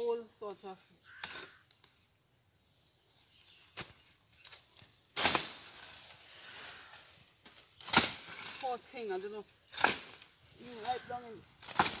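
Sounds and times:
hoe swishing through vegetation: 3.6s - 12.0s.

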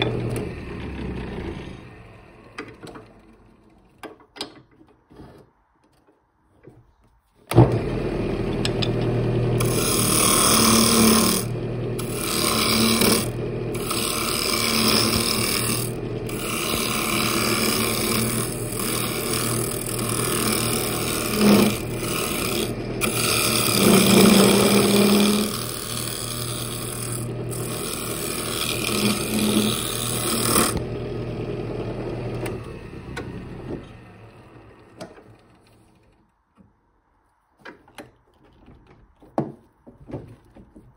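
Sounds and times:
wood lathe motor running: 0.0s - 3.8s, 7.5s - 35.7s
turning tool cutting wood: 0.0s - 4.1s, 7.5s - 36.2s.

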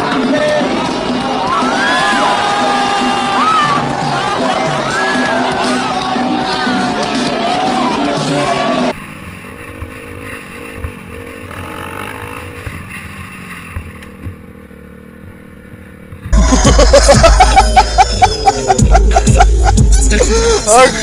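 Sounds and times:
loud music with voices: 0.0s - 9.0s, 16.4s - 21.0s
dirt bike engine running: 8.9s - 20.2s.

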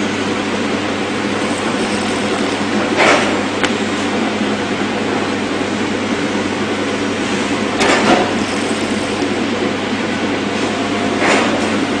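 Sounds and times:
binding machine motor rumbling: 0.0s - 10.4s.

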